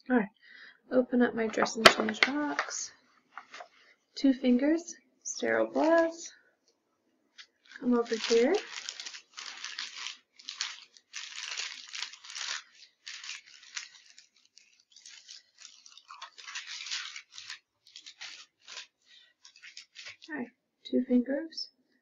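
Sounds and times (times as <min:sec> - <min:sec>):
paper packaging crinkling: 0:05.5 - 0:06.2, 0:07.4 - 0:20.4.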